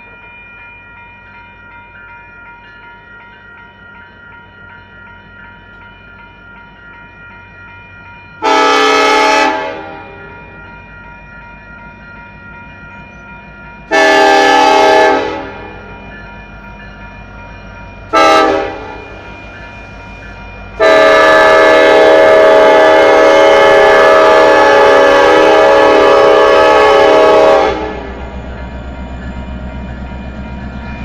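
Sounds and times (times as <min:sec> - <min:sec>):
crossing bell ringing: 0:00.0 - 0:31.0
locomotive air horn: 0:08.4 - 0:10.2, 0:13.9 - 0:15.7, 0:18.1 - 0:19.0, 0:20.8 - 0:28.2.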